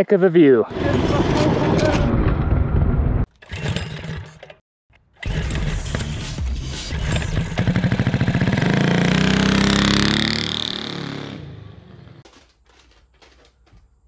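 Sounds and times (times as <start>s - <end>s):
engine revving: 5.2s - 12.2s.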